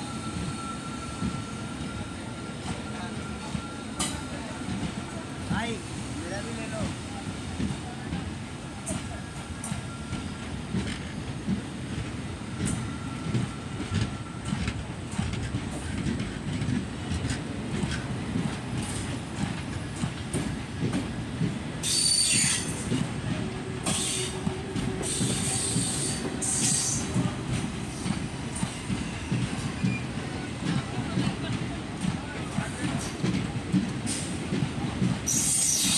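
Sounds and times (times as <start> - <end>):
train wheels rumbling and clattering: 0.0 - 35.9
high-pitched wheel squeal: 21.8 - 22.9.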